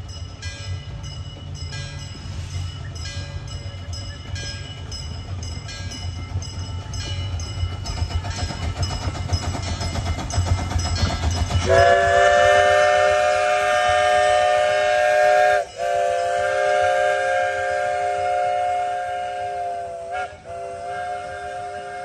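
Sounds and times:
train rumbling past: 0:00.0 - 0:22.0
steam locomotive whistle: 0:11.5 - 0:22.0.

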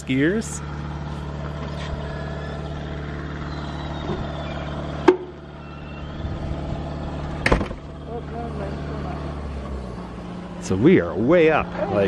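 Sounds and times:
low mechanical hum: 0:00.0 - 0:12.0
sharp knocks: 0:07.4 - 0:07.8.

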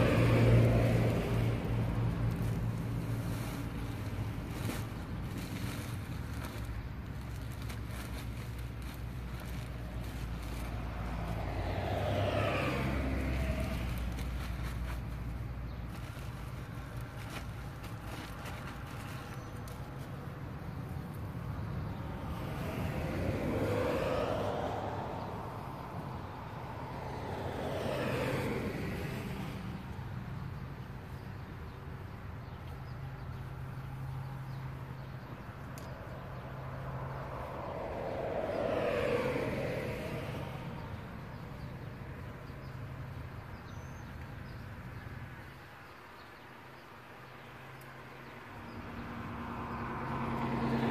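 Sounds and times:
vehicle driving past: 0:00.0 - 0:03.4, 0:09.4 - 0:15.0, 0:21.4 - 0:30.0, 0:36.0 - 0:42.8, 0:48.8 - 0:50.9
car passing by: 0:00.0 - 0:19.7, 0:21.0 - 0:30.4, 0:33.6 - 0:44.0, 0:48.3 - 0:50.9
wind rumble on microphone: 0:21.4 - 0:30.1, 0:37.0 - 0:42.2.

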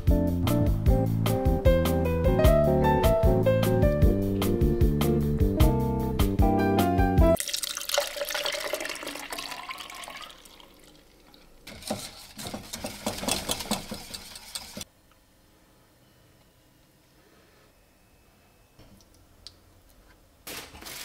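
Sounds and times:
piano music: 0:00.0 - 0:07.4
liquid pouring through a sieve: 0:07.4 - 0:14.8
whisk scraping a metal saucepan: 0:11.6 - 0:14.9.

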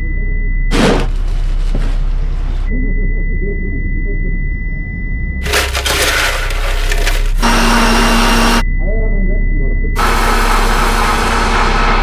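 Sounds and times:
muffled ambience: 0:00.0 - 0:05.5
loud clattering grinding noise: 0:05.4 - 0:08.6.

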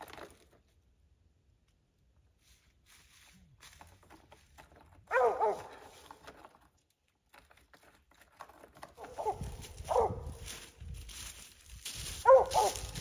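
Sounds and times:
dry leaves crackling underfoot: 0:02.4 - 0:04.1, 0:05.1 - 0:06.2, 0:09.0 - 0:13.0
dog barking: 0:05.1 - 0:05.8, 0:09.0 - 0:10.3, 0:12.2 - 0:13.0.

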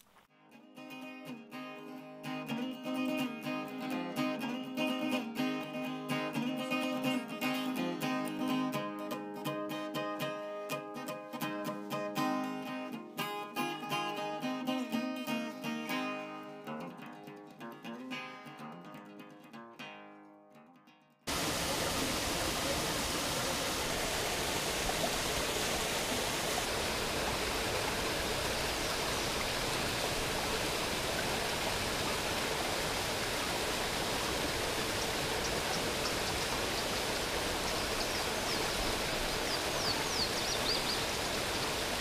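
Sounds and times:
acoustic guitar music: 0:00.3 - 0:21.3.

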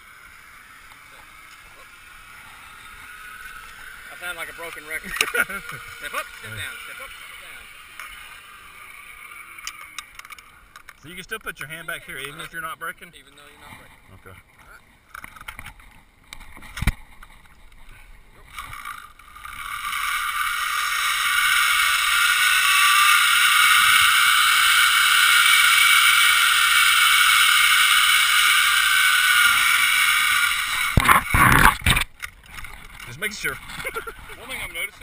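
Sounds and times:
zip line pulleys whining: 0:00.0 - 0:11.2, 0:18.5 - 0:33.0, 0:33.6 - 0:35.0.

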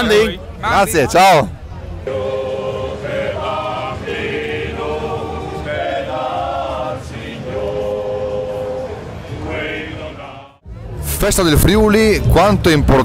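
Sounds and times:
choir singing slow song: 0:02.0 - 0:10.6.

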